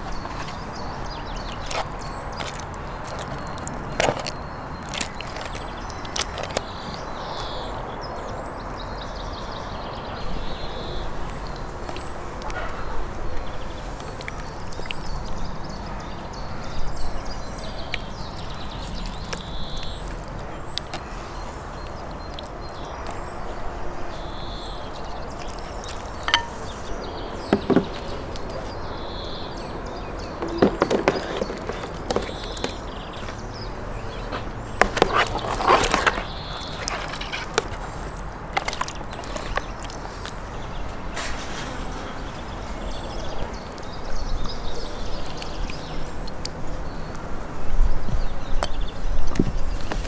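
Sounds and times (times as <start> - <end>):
plastic tub and wet fish clattering: 0.0 - 7.6, 17.6 - 23.2, 24.9 - 28.9, 29.8 - 40.5
outdoor background noise: 0.0 - 50.0.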